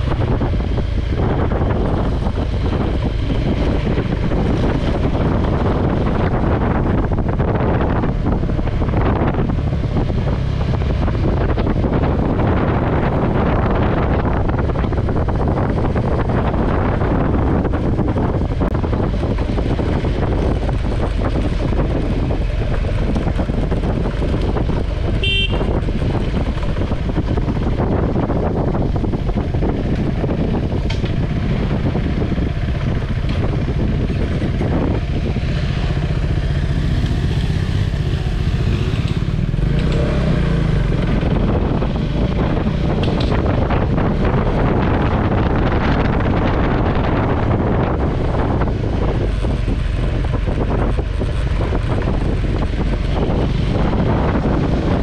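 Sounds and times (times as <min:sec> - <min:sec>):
motorcycle engine running: 0:00.0 - 0:55.0
wind noise on microphone: 0:00.0 - 0:55.0
short horn toot: 0:25.2 - 0:25.8.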